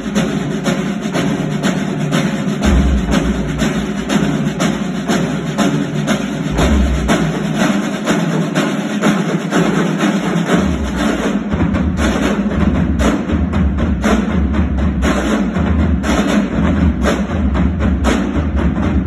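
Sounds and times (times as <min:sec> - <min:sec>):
marching drums playing: 0:00.0 - 0:19.0
deep low drum beats: 0:01.2 - 0:08.5.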